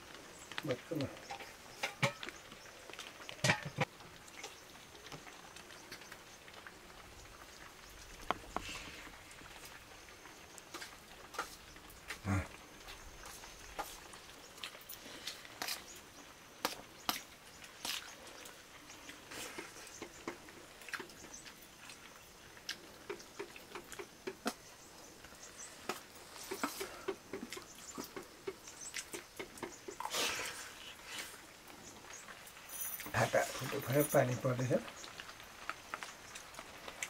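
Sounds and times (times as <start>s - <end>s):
small clicks and taps: 25.8s - 30.0s.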